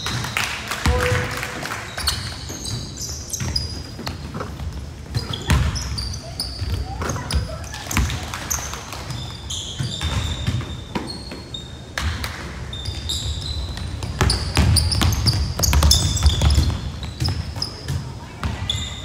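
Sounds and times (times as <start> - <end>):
sneakers squeaking on court: 0.0 - 19.0
basketball bouncing on wooden floor: 2.6 - 8.2, 13.6 - 18.8.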